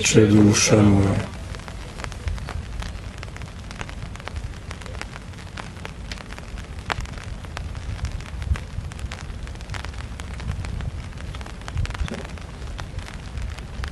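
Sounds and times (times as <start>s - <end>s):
low wind rumble: 0.0s - 13.9s
raindrops ticking: 0.0s - 13.9s.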